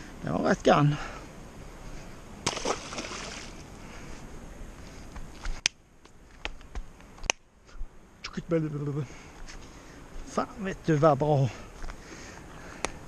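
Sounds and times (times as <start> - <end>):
fish splashing into water: 2.4 - 3.6
flowing water rushing: 2.5 - 3.7.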